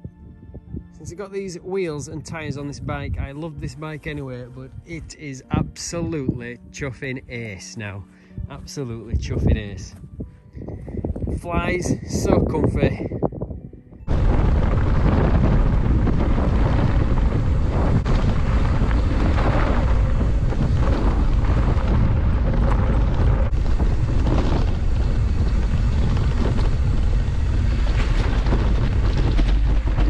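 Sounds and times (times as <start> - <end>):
wind buffeting microphone: 0.0 - 7.0, 8.2 - 30.0
bike clicks over bumps: 14.1 - 30.0.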